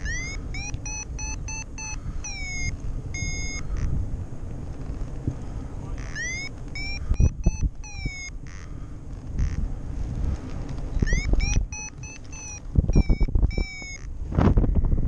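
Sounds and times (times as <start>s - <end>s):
electronic beeps rising in pitch: 0.0s - 3.6s, 6.1s - 8.4s, 11.0s - 14.1s
wind on microphone: 0.0s - 8.3s, 9.2s - 15.0s.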